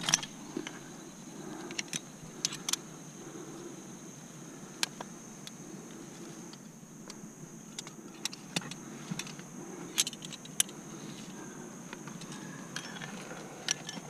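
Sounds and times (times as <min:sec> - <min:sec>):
carabiners clinking: 0:00.0 - 0:00.8, 0:01.6 - 0:02.8, 0:07.7 - 0:11.3, 0:12.0 - 0:14.0.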